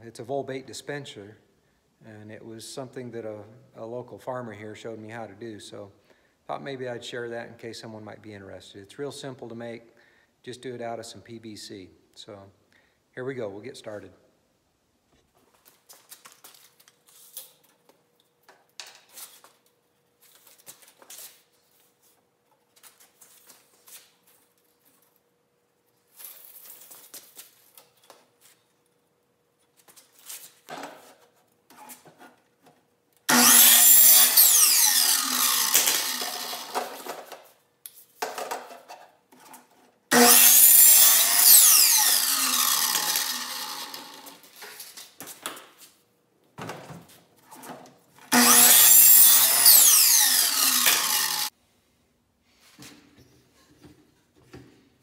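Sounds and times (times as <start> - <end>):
saw motor winding down: 33.3 - 37.1, 40.1 - 44.4, 48.3 - 51.5
miter saw cutting pipe: 33.3 - 37.3, 40.1 - 44.4, 48.3 - 51.5.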